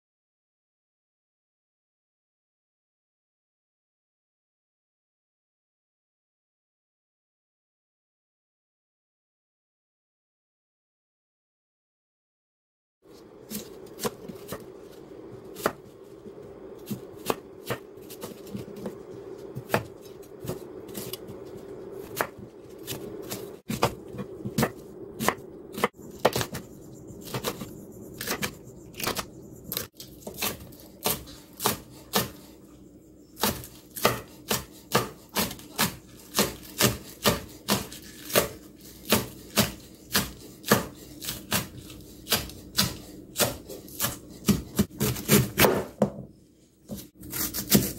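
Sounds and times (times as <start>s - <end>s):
faint steady hum: 13.1s - 45.2s
knife chopping on wooden board: 15.6s - 15.8s, 16.8s - 19.0s, 19.6s - 21.4s, 22.0s - 32.5s, 33.4s - 46.3s, 46.9s - 47.9s.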